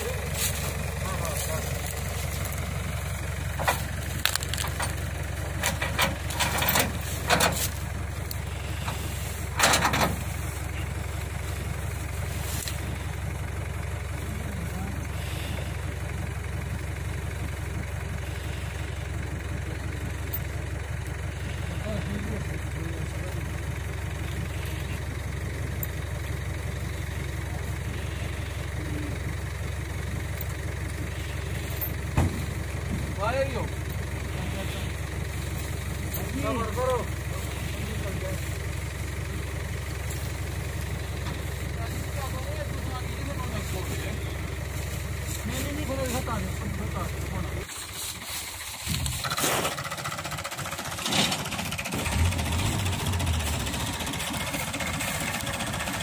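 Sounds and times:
dry leaves crackling underfoot: 0:00.0 - 0:05.6, 0:06.2 - 0:14.3, 0:23.8 - 0:25.3, 0:33.8 - 0:50.0
truck engine idling: 0:00.0 - 0:56.0.

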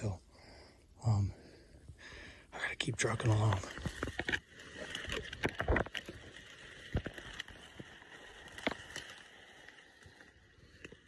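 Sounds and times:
stems rustling: 0:03.0 - 0:11.0.

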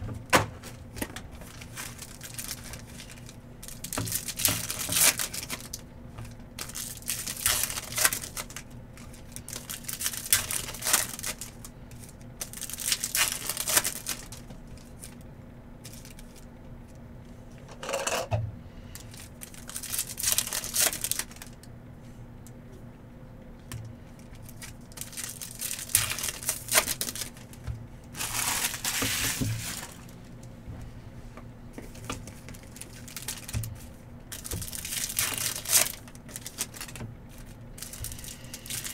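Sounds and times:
wrappers crinkling: 0:00.6 - 0:15.2, 0:15.8 - 0:16.5, 0:19.0 - 0:21.6, 0:24.2 - 0:30.5, 0:31.9 - 0:38.9
card packs tearing open: 0:01.0 - 0:05.8, 0:06.6 - 0:15.2, 0:19.0 - 0:21.6, 0:24.4 - 0:27.6, 0:28.2 - 0:30.2, 0:32.5 - 0:33.6, 0:34.3 - 0:38.9.

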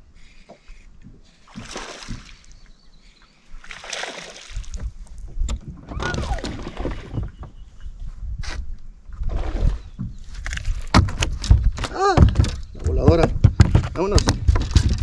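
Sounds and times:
water splashing: 0:01.3 - 0:02.7, 0:03.5 - 0:07.4.

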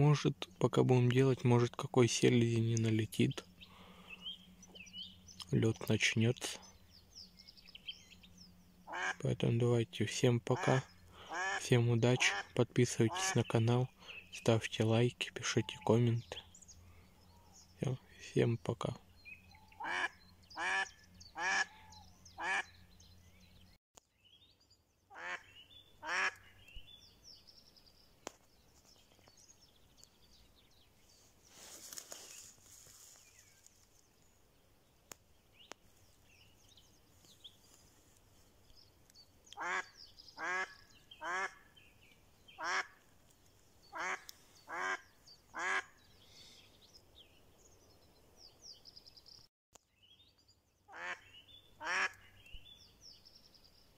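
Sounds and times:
duck quacking: 0:08.9 - 0:09.2, 0:10.6 - 0:13.4, 0:19.8 - 0:21.8, 0:22.4 - 0:22.7, 0:25.1 - 0:26.5, 0:39.6 - 0:41.6, 0:42.6 - 0:43.0, 0:43.9 - 0:45.0, 0:45.6 - 0:45.9, 0:50.9 - 0:52.3.

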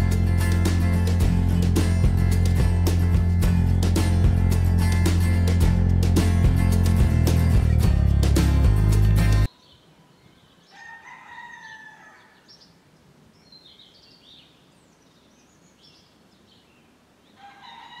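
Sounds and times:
faint rooster crowing: 0:10.6 - 0:12.6, 0:17.4 - 0:18.0
small birds chirping: 0:12.2 - 0:17.4.

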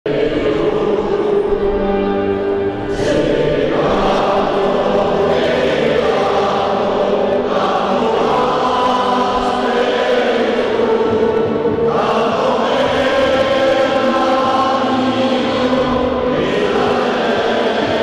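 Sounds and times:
crowd singing a chant: 0:00.1 - 0:18.0.

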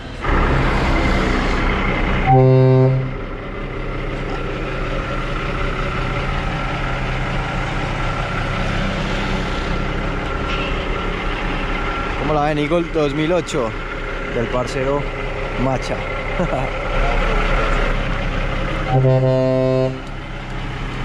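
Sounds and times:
diesel truck engine running: 0:00.0 - 0:21.0
truck horn blast: 0:02.2 - 0:03.3, 0:18.8 - 0:20.2.

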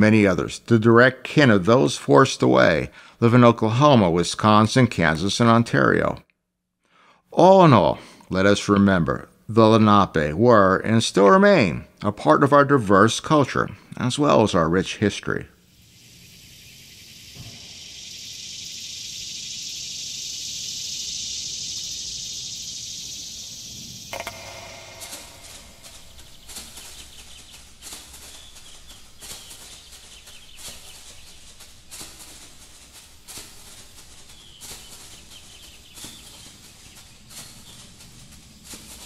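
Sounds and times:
steady high hiss: 0:07.3 - 0:39.0
scattered clicks: 0:24.1 - 0:31.2.

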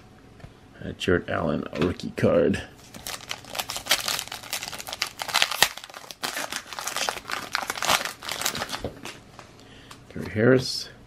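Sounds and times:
foil wrapper crinkling and tearing: 0:02.8 - 0:09.2.

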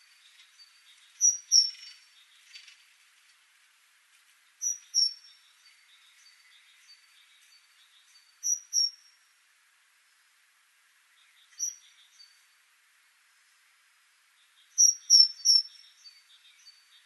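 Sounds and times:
faint background hiss: 0:00.0 - 0:17.0
great tit singing: 0:00.6 - 0:02.7, 0:04.6 - 0:09.0, 0:11.1 - 0:12.4, 0:14.4 - 0:17.0.

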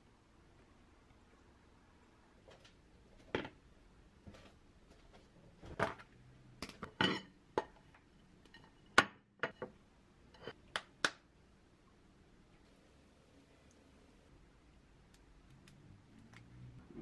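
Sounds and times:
dishes clattering on a counter: 0:06.8 - 0:07.8.

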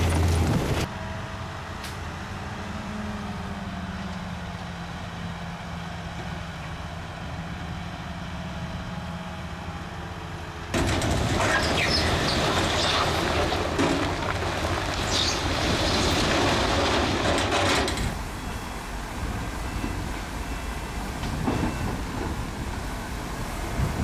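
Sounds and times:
bulldozer diesel engine droning: 0:00.0 - 0:24.0
steel tracks clanking and squealing: 0:10.8 - 0:24.0.

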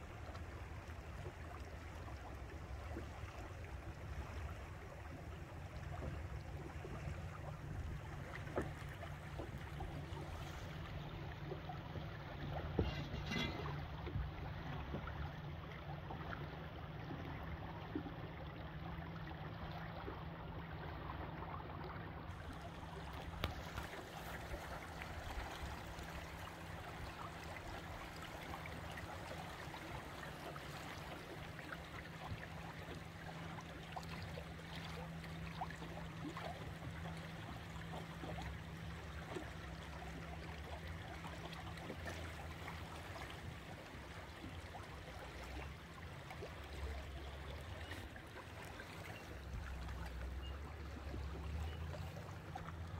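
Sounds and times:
steady low hum: 0:00.0 - 0:52.9
water rushing and gurgling: 0:00.0 - 0:52.9.

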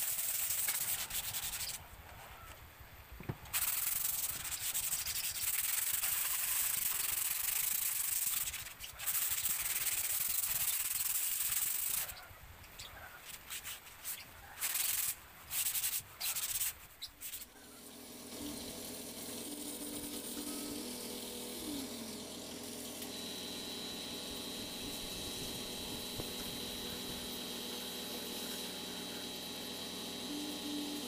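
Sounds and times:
sandpaper scraping wood: 0:00.0 - 0:01.8, 0:03.5 - 0:12.2, 0:13.2 - 0:23.0
steady hum with held tones: 0:16.8 - 0:31.0.

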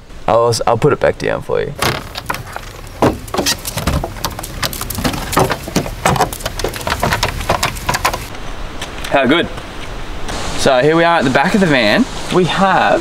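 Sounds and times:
hinged panels knocking and clunking: 0:01.8 - 0:08.3.

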